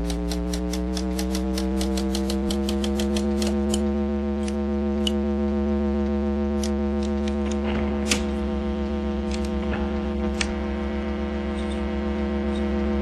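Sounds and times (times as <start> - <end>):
fast even ticking: 0.0 - 3.8
droning chord: 3.1 - 13.0.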